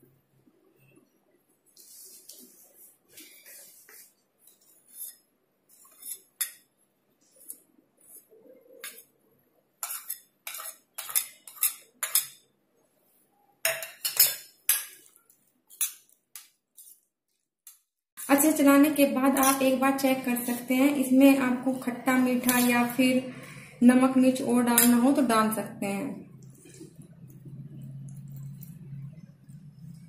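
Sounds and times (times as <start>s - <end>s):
spoons clinking on steel bowls: 9.8s - 12.5s, 13.7s - 16.5s, 19.2s - 19.8s, 22.3s - 23.0s, 24.7s - 25.2s.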